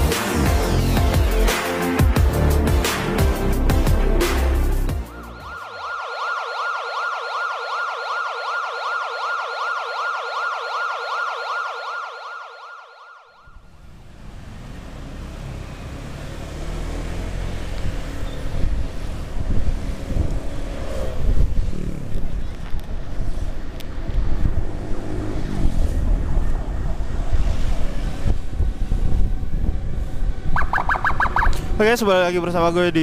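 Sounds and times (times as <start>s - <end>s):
electronic siren yelping: 5.0s - 13.6s, 30.5s - 31.7s
wind and road noise of motorcycle: 13.4s - 33.0s.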